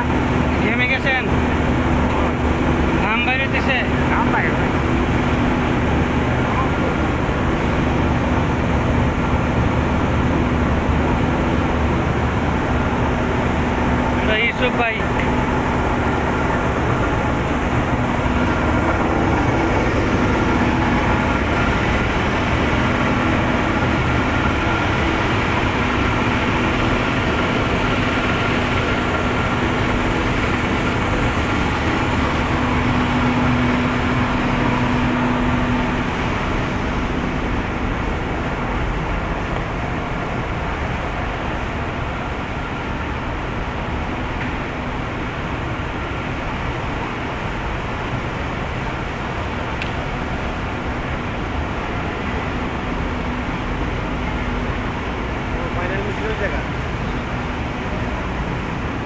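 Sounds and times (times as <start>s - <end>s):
machinery droning hum: 0.0s - 59.0s.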